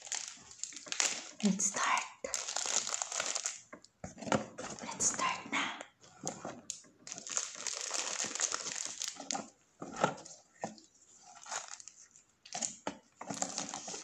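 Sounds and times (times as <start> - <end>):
paper and cardboard rustling: 6.0 - 14.0.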